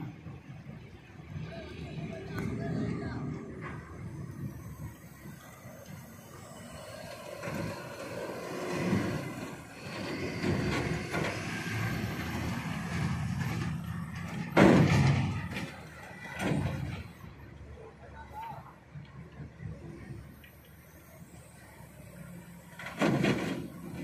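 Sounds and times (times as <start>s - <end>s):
diesel engine running: 0.0s - 18.1s, 18.7s - 24.0s
hydraulics working: 0.2s - 17.8s, 18.7s - 24.0s.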